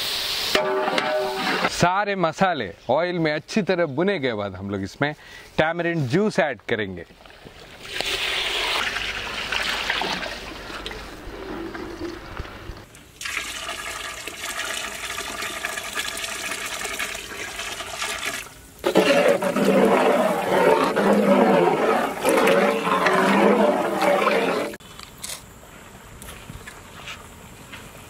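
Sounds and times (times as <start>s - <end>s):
liquid splashing: 7.6s - 15.3s, 18.8s - 24.8s
liquid pouring into metal pot: 13.2s - 18.4s.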